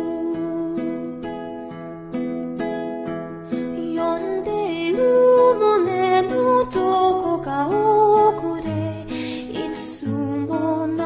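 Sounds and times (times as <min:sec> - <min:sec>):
person singing: 0:00.0 - 0:01.2, 0:03.7 - 0:11.0.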